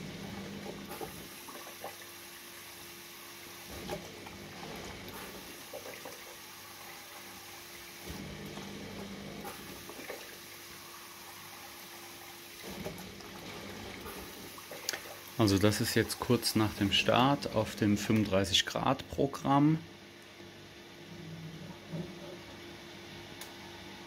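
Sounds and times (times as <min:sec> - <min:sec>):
water splashing inside dishwasher: 0:00.0 - 0:18.3.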